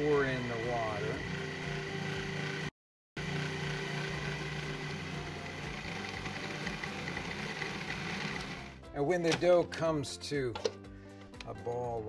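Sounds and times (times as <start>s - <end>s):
food processor motor running: 0.0s - 8.8s.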